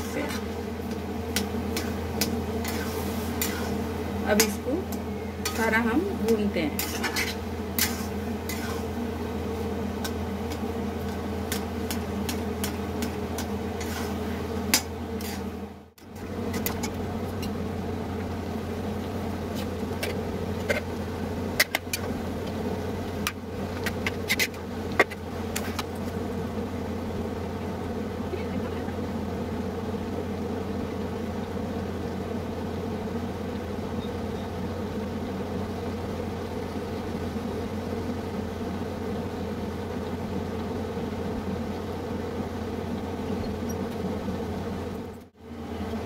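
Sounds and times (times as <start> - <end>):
low mechanical hum: 0.0 - 46.0
spatula scraping metal pan: 1.4 - 4.6, 6.7 - 9.0, 10.0 - 15.5.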